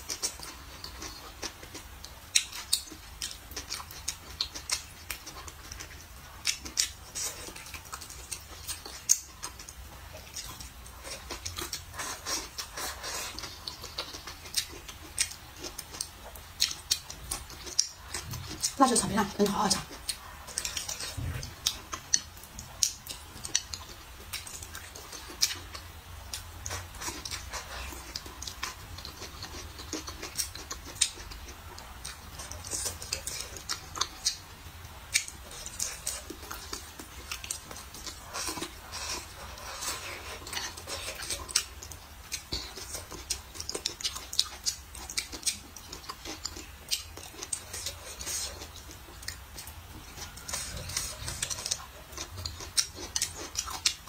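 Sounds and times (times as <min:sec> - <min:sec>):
wet chewing clicks and smacks: 0:00.0 - 0:19.1, 0:19.7 - 0:54.0.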